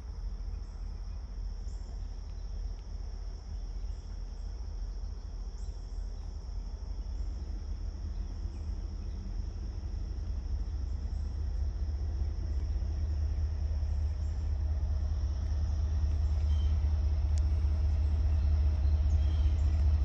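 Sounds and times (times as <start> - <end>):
low rumble: 0.0 - 20.0
insects chirring: 0.1 - 20.0.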